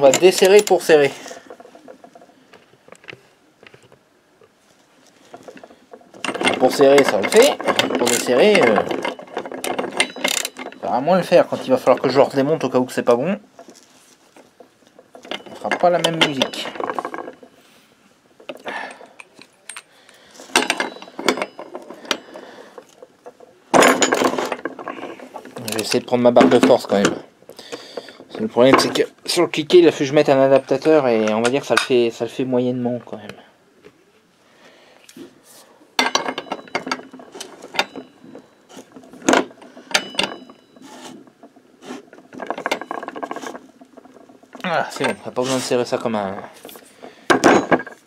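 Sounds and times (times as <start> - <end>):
metal tools clinking: 0.0 - 4.0, 5.0 - 32.2, 36.0 - 48.0
metal clatter: 0.0 - 32.3, 36.0 - 48.0.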